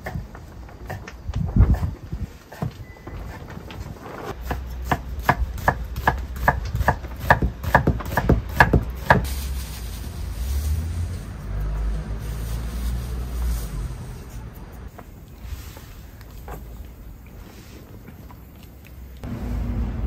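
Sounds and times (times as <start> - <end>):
knife chopping on wooden board: 4.4 - 9.2.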